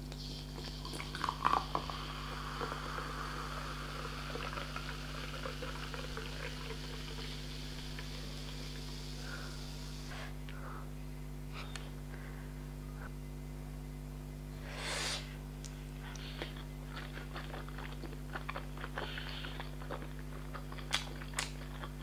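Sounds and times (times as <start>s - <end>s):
soda fizzing into a glass: 0.6s - 9.2s.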